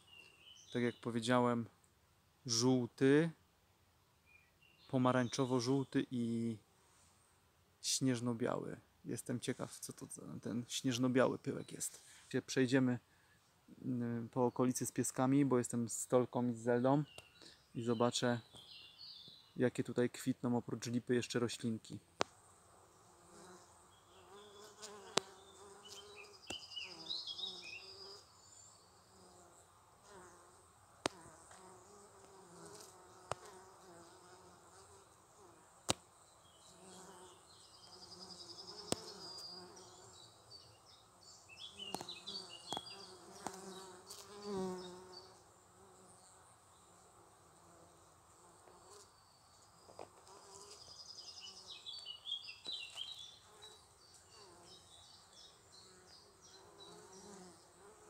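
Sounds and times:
birds chirping faintly: 0.0 - 1.6, 7.8 - 30.8, 31.6 - 58.0
bees buzzing: 22.9 - 28.2, 30.0 - 35.1, 36.6 - 40.3, 41.6 - 46.0.

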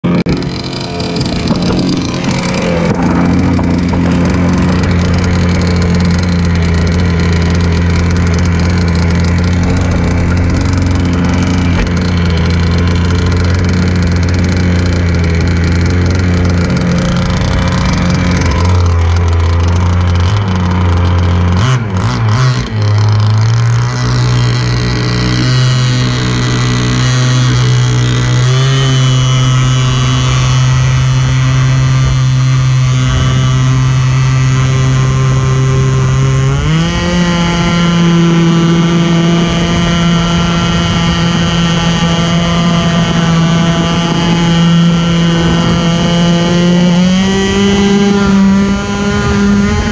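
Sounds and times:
model boat engine running: 0.0 - 49.9.

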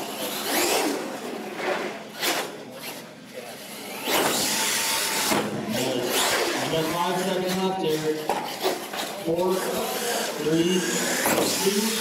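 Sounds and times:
toy truck motor whine: 0.0 - 1.1, 3.7 - 5.4, 9.7 - 12.0.

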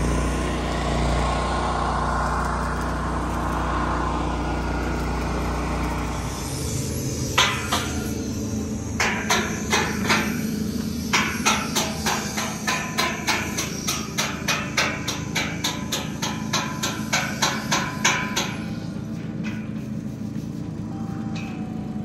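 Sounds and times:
continuous low hum: 0.0 - 22.0
hammer blows: 5.6 - 20.0.

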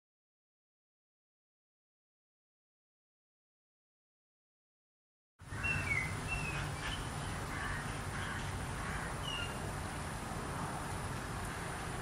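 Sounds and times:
high bird calls: 5.4 - 9.6.

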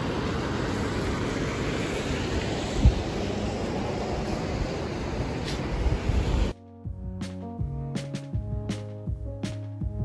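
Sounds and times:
wind buffeting microphone: 0.0 - 6.5.

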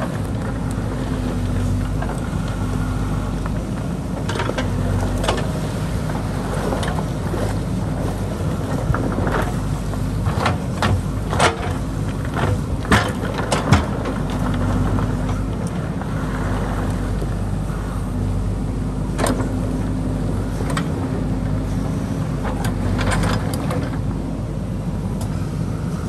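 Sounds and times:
diesel engine running under load: 0.0 - 26.0.

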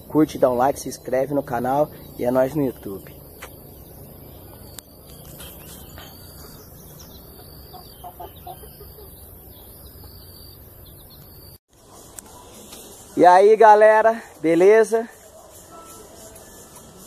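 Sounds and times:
outdoor background noise: 0.0 - 17.0
chickens clucking: 5.2 - 10.2.

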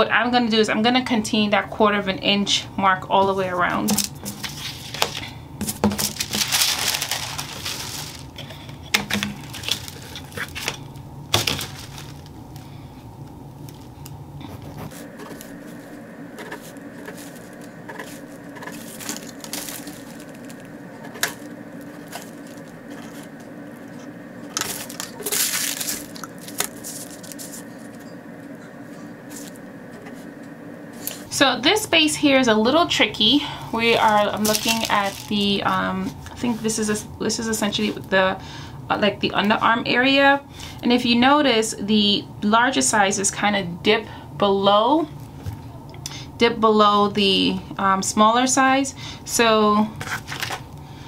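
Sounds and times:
tissue paper rustling: 4.4 - 12.4, 13.7 - 23.4, 24.6 - 28.0, 34.0 - 36.7.

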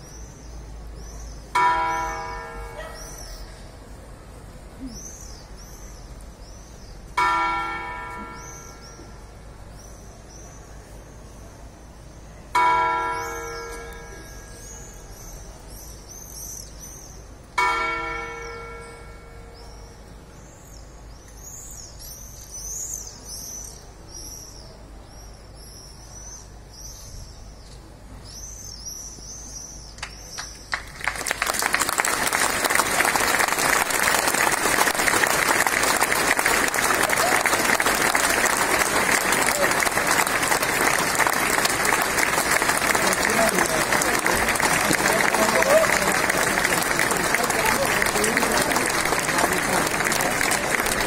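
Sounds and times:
clock tower bell ringing: 1.6 - 3.0, 7.2 - 9.1, 12.6 - 14.7, 17.6 - 20.0
crowd applauding: 30.0 - 51.0
birds chirping: 32.0 - 51.0.

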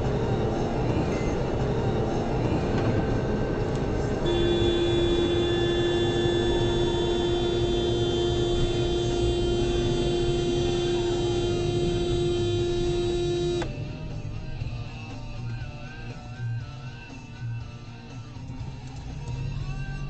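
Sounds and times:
car road and engine noise: 0.0 - 20.0
steady single-pitched tone: 4.2 - 13.7.

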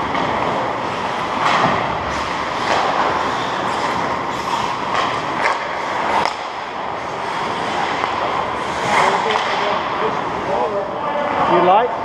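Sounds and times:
skate blades scraping on ice: 0.2 - 9.6.

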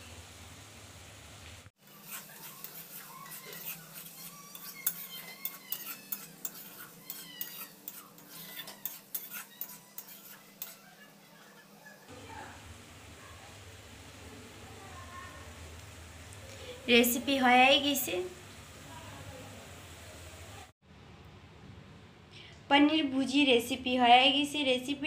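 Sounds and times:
spatula scraping a pan: 1.8 - 12.1
short high squeaks: 2.3 - 10.8.

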